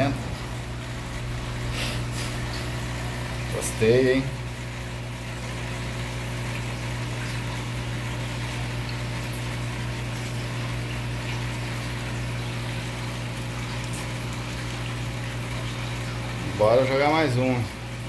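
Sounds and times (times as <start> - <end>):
aquarium pump humming: 0.0 - 18.0
water hiss: 1.6 - 3.0.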